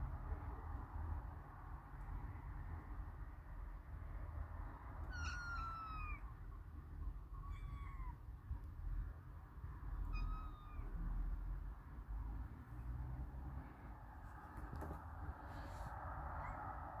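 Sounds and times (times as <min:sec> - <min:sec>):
kitten meowing: 0:05.0 - 0:06.4, 0:07.3 - 0:08.3, 0:10.0 - 0:11.0.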